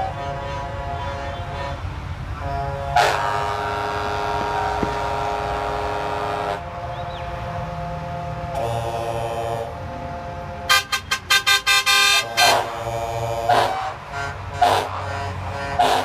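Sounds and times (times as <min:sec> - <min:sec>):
bus engine rumble: 0:00.0 - 0:16.0
bus horns blasting: 0:00.0 - 0:16.0.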